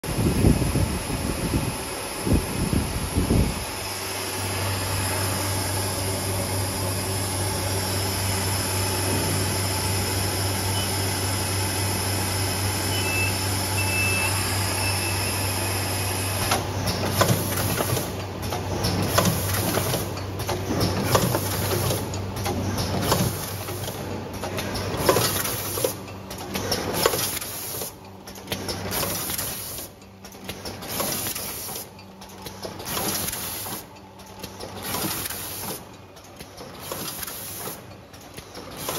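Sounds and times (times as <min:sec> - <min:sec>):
packing machine humming: 0:00.1 - 0:38.9
machine clacks and knocks: 0:16.5 - 0:27.4.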